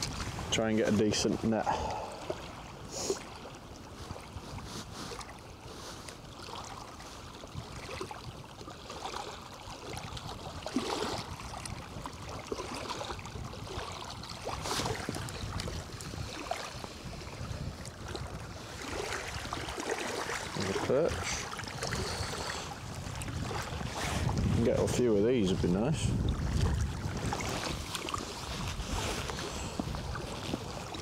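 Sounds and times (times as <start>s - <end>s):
small waves lapping: 0.0s - 31.0s
wind gusts: 0.0s - 31.0s.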